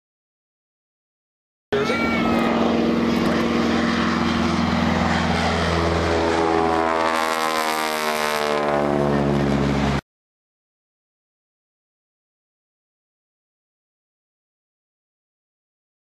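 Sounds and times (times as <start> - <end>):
propeller plane flying overhead: 1.7 - 10.0.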